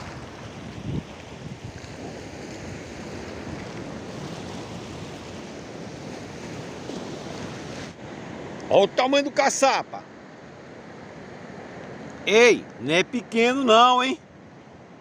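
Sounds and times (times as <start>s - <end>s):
wind buffeting microphone: 0.0s - 8.6s
sea waves breaking on rocks: 0.0s - 9.9s.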